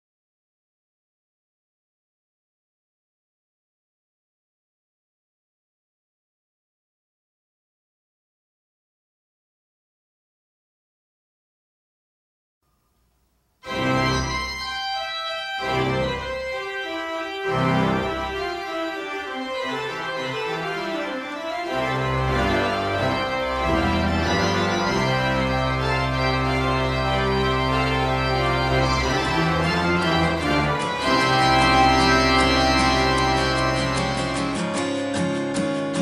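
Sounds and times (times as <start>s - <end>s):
slow organ music: 12.8s - 36.0s.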